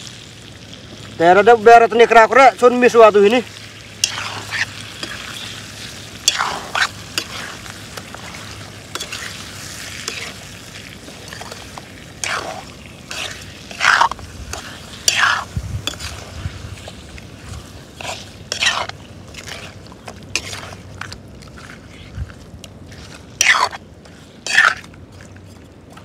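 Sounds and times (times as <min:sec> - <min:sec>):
food sizzling in a pan: 0:00.0 - 0:20.8, 0:23.4 - 0:24.8
utensil scraping and knocking pan: 0:13.1 - 0:16.2, 0:18.0 - 0:19.6, 0:23.4 - 0:23.8.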